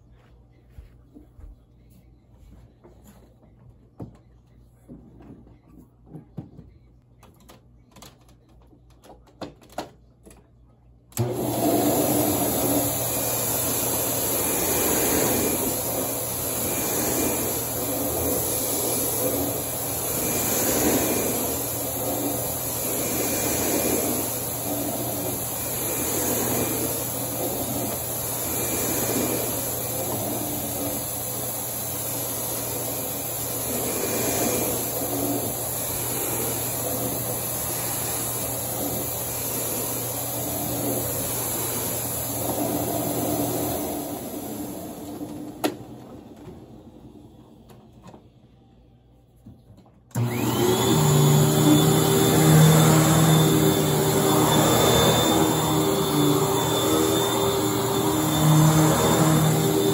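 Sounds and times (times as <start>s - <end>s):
vacuum cleaner running on carpet: 11.2s - 48.0s, 50.1s - 59.9s.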